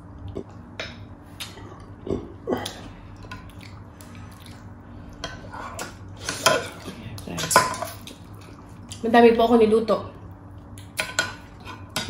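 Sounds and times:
wet mouth eating sounds: 0.1 - 4.8.

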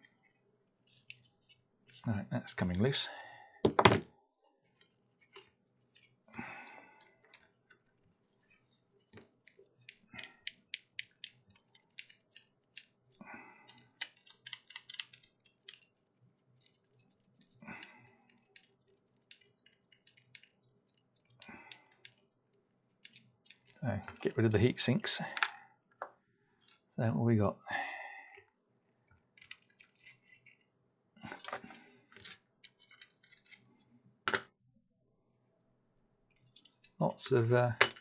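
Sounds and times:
nut turning with metallic ticks: 0.0 - 2.1, 4.8 - 22.3, 23.0 - 24.3, 29.4 - 30.6, 32.6 - 33.7.

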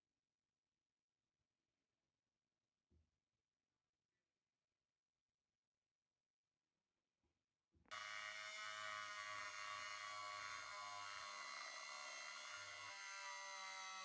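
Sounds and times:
rotary tool sanding steel: 7.9 - 14.0.

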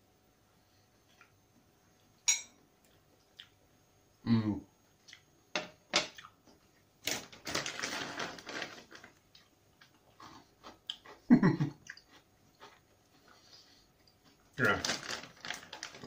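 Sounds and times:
person humming mm: 4.2 - 4.7
rice cracker crunching: 7.0 - 11.2, 11.9 - 13.5, 14.2 - 16.0.

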